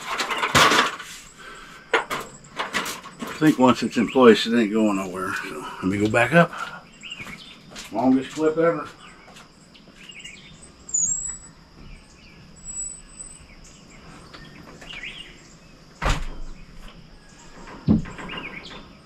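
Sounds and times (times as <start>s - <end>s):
birds chirping: 0.0s - 19.0s
high insect drone: 0.0s - 19.0s
thumps on wooden deck framing: 16.0s - 19.0s.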